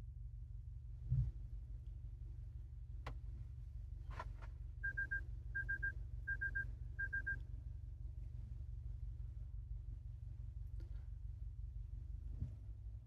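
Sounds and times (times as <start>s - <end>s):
low cabin hum: 0.0s - 13.0s
vehicle alert chime beeping: 4.8s - 7.4s.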